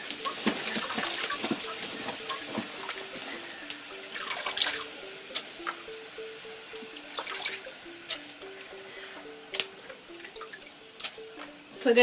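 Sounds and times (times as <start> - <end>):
water splashing and dripping: 0.1 - 3.5, 4.1 - 5.9, 6.8 - 8.3.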